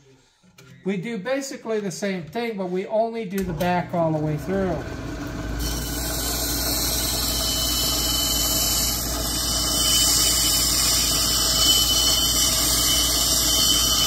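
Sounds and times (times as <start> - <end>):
motor hum: 3.4 - 14.0
high squealing whine: 5.6 - 14.0
stone hissing on grinding wheel: 5.6 - 14.0.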